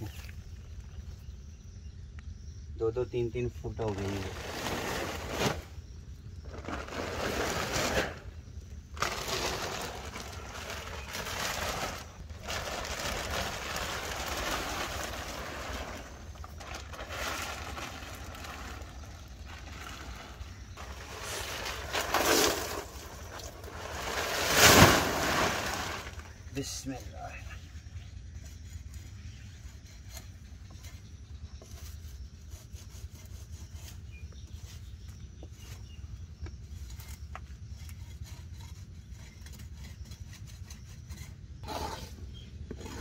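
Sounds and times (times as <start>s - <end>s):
plastic sheeting rustling: 3.8s - 5.7s, 6.5s - 8.3s, 8.9s - 26.8s.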